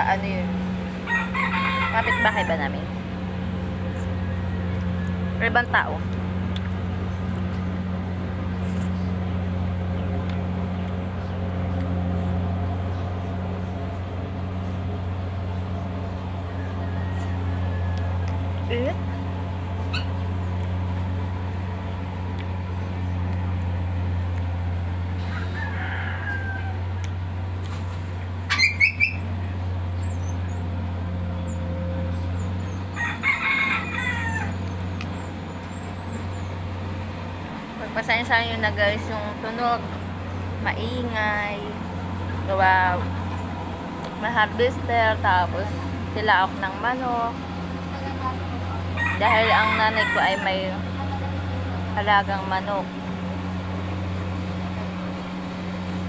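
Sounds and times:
harvester engine droning: 0:00.0 - 0:56.0
rooster crowing: 0:00.9 - 0:05.6, 0:16.2 - 0:18.5, 0:25.1 - 0:27.0, 0:32.6 - 0:35.3, 0:48.7 - 0:51.1.

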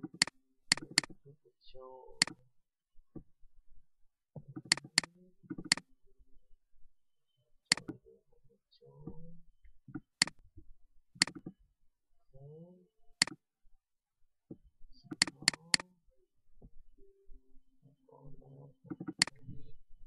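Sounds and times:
mouse button clicking: 0:15.1 - 0:15.8, 0:19.0 - 0:19.4.

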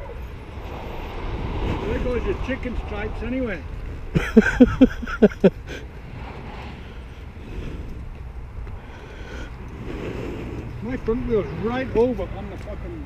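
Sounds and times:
wind rumble on microphone: 0:00.0 - 0:13.0
man laughing: 0:04.1 - 0:05.8.

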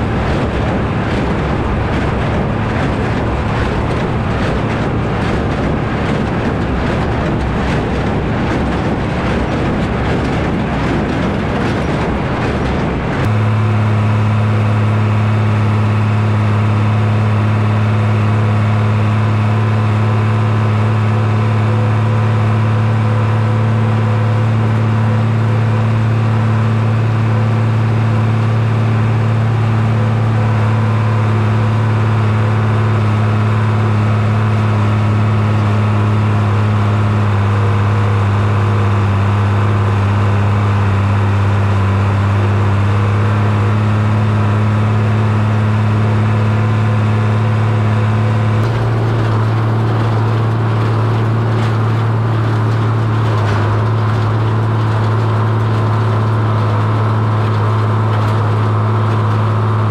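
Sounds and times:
tractor engine droning: 0:00.0 - 0:59.9.

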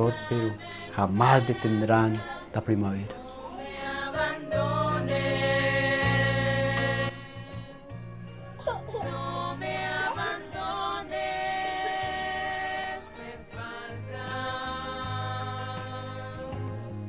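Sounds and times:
voices singing long notes: 0:00.0 - 0:08.0, 0:08.9 - 0:16.9.

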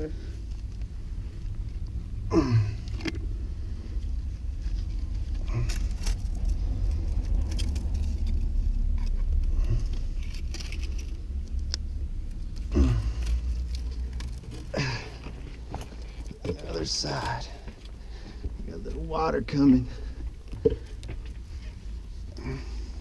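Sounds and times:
low rumble: 0:00.0 - 0:23.0
pipe fittings clicking and rattling: 0:05.4 - 0:21.7.

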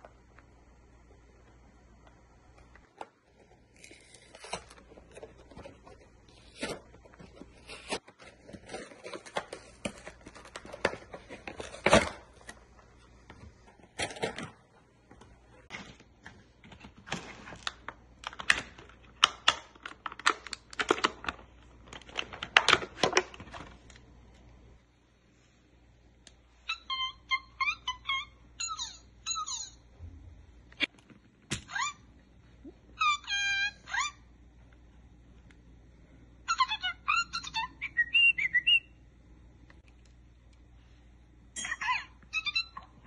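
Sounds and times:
toy packaging being pulled apart: 0:03.7 - 0:05.3.

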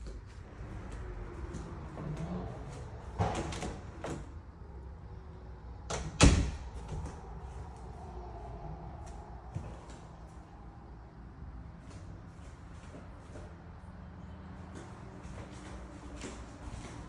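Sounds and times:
faint footsteps: 0:00.0 - 0:03.4, 0:08.9 - 0:10.6, 0:11.8 - 0:13.8, 0:14.5 - 0:17.0.

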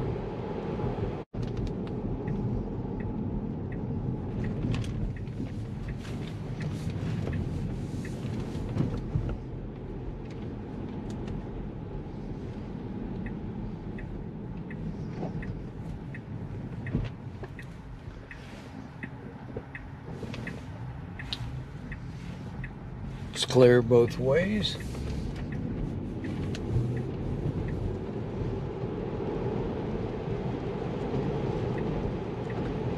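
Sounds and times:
tyre rumble on wet road: 0:04.0 - 0:13.1
faint ticking: 0:12.5 - 0:28.0.

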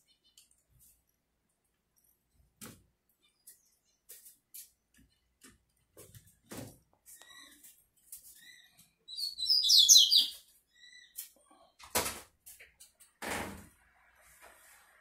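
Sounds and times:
faint bird chirps: 0:08.4 - 0:11.8
bird singing warbled phrase: 0:09.2 - 0:10.4.

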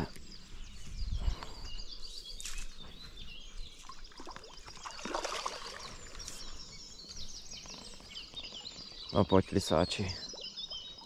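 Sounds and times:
songbirds chirping: 0:00.0 - 0:11.0
water splashing and sloshing: 0:03.7 - 0:06.6.

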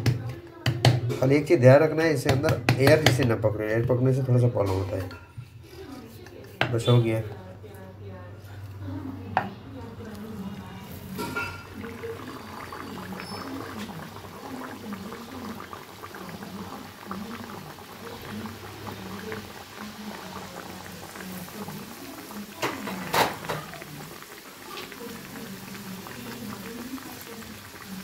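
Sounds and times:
oil sizzling and bubbling: 0:08.4 - 0:28.0.

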